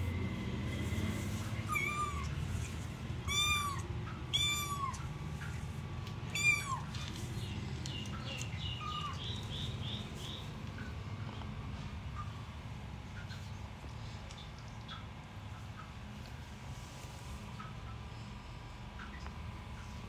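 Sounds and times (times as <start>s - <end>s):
cats mewing: 1.6s - 5.6s, 6.2s - 7.2s, 8.3s - 9.4s.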